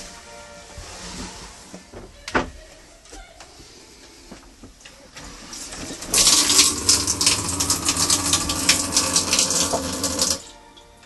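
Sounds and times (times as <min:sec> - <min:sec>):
electric pump humming: 0:05.2 - 0:10.6
water rushing and splashing: 0:05.6 - 0:10.4.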